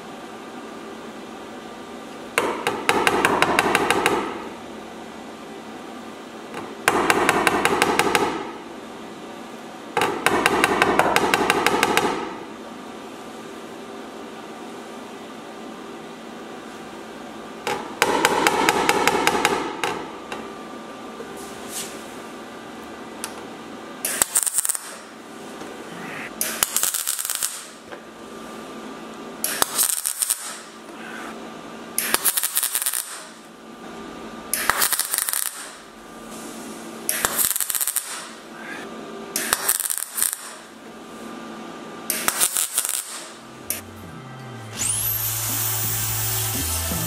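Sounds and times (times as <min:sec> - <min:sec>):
welder crackling bursts: 0:24.1 - 0:25.0, 0:26.5 - 0:27.8, 0:29.5 - 0:30.7, 0:32.0 - 0:33.3, 0:34.6 - 0:35.8, 0:37.1 - 0:38.3, 0:39.4 - 0:40.6, 0:42.2 - 0:43.9, 0:44.8 - 0:47.0
grinder high whine: 0:43.6 - 0:47.0.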